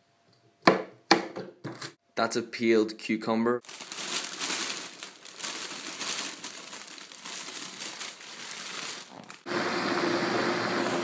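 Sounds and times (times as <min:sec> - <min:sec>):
plastic bag crinkling: 0:03.6 - 0:09.5
blender motor running: 0:09.4 - 0:11.0.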